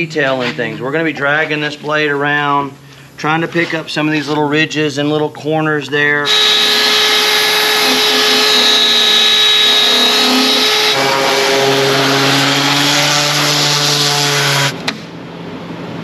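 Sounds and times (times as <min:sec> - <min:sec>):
steady hum: 0:00.0 - 0:16.0
random orbital sander: 0:06.2 - 0:14.8
rotary sander: 0:06.3 - 0:14.8.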